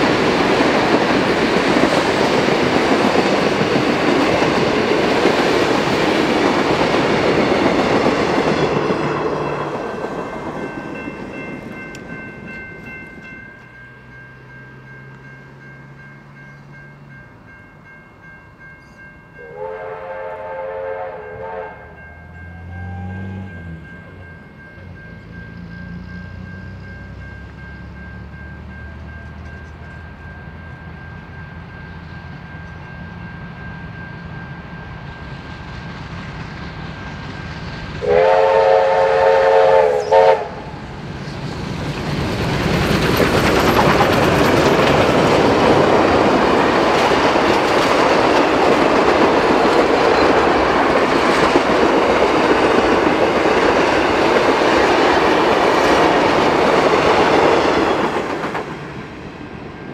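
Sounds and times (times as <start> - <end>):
steam train rumble: 0.0 - 59.9
train wheels rushing on rails: 0.0 - 59.9
steam train whistle chord: 18.9 - 24.2, 38.0 - 40.8.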